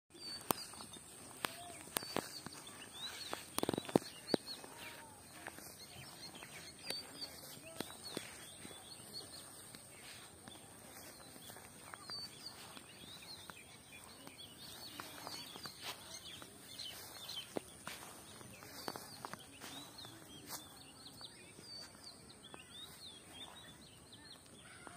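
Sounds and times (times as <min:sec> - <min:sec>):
birds chirping: 0:00.1 - 0:24.9
footsteps on grass: 0:00.1 - 0:24.9.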